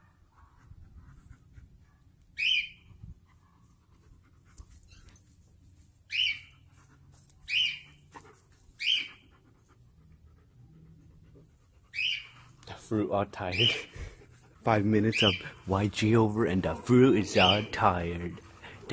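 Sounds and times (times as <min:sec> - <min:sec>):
dog yelping: 0:06.1 - 0:09.7, 0:10.3 - 0:12.6, 0:13.5 - 0:14.4, 0:17.4 - 0:18.0.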